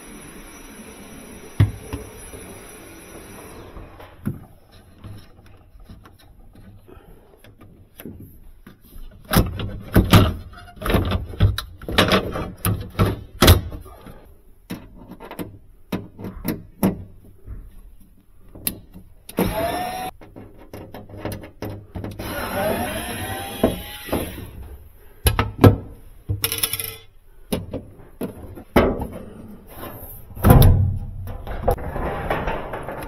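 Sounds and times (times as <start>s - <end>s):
plastic panels knocking and clattering: 7.5s - 13.8s, 14.7s - 17.7s, 20.2s - 22.2s, 25.2s - 26.9s, 27.5s - 29.4s, 30.4s - 33.0s
power screwdriver whirring: 19.3s - 20.1s, 22.2s - 24.6s.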